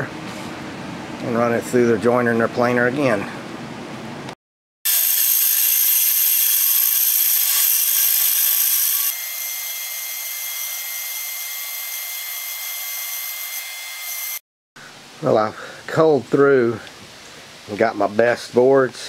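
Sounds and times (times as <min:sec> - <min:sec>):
band saw cutting wood: 0:04.9 - 0:14.4.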